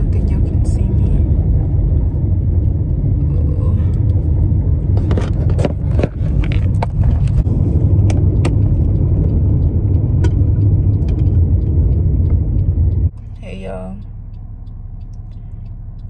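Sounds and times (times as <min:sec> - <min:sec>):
car cabin rumble: 0:00.0 - 0:16.0.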